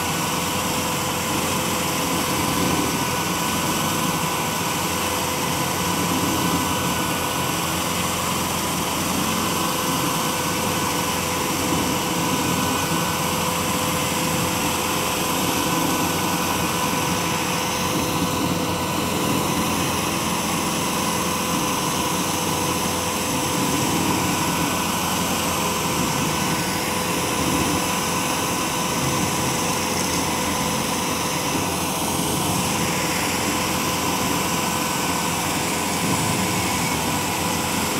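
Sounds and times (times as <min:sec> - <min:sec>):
cutter wheel grinding stump: 0:00.0 - 0:37.9
stump grinder engine running: 0:00.0 - 0:37.9.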